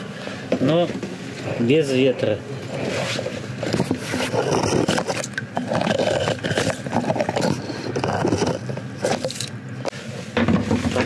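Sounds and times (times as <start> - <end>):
ice scoop scraping slush: 2.7 - 9.5.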